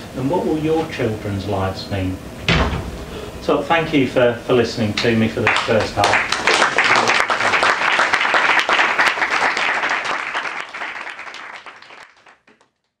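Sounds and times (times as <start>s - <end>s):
small audience applauding: 5.4s - 13.0s.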